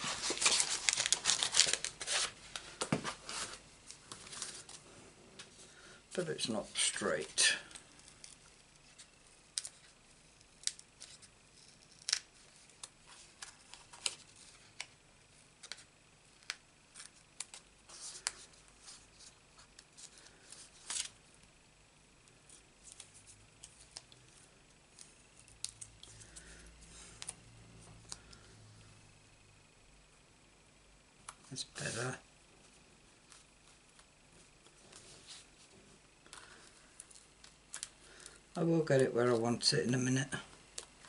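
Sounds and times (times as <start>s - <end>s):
paper rustling: 0.0s - 4.8s.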